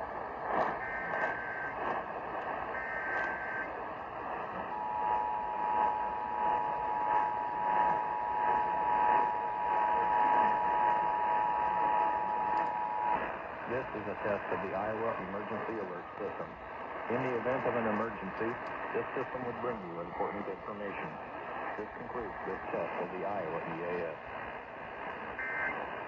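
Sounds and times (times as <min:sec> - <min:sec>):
radio static hiss: 0:00.0 - 0:26.0
shrill data bursts: 0:00.4 - 0:26.0
steady two-tone alert signal: 0:02.7 - 0:03.7, 0:25.4 - 0:25.8.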